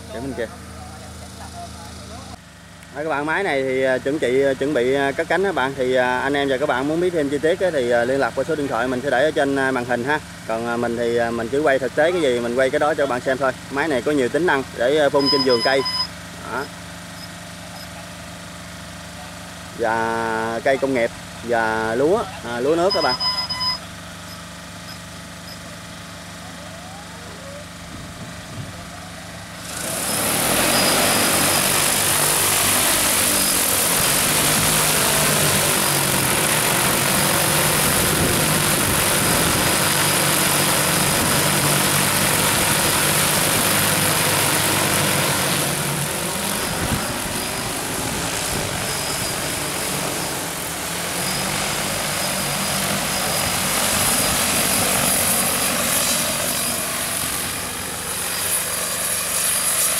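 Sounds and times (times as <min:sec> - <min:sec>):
drone rotors whirring: 0:26.9 - 0:59.9.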